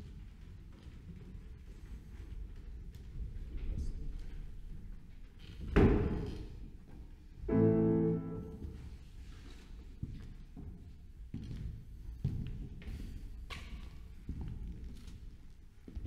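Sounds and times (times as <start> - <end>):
grand piano note: 7.5 - 9.0.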